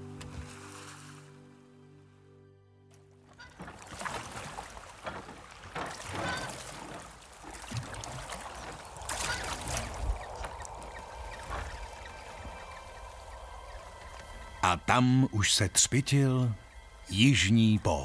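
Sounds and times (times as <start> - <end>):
oars splashing in water: 0.0 - 1.4, 2.9 - 14.8.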